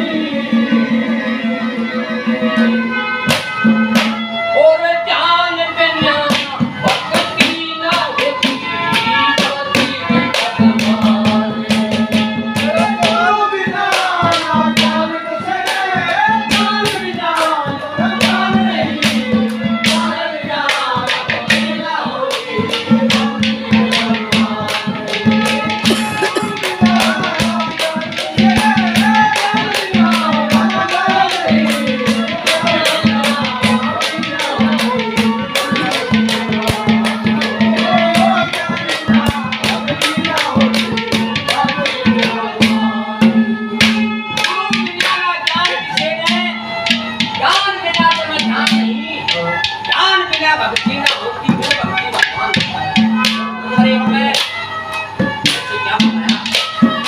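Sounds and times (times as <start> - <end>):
fast percussion rhythm: 3.2 - 4.5, 5.8 - 57.0
man singing: 25.8 - 34.8.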